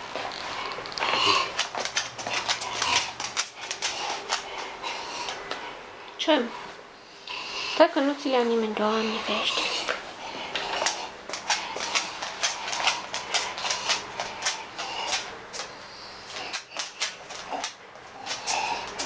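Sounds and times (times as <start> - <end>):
dog claws clicking on hard floor: 0.3 - 5.6, 9.6 - 19.0.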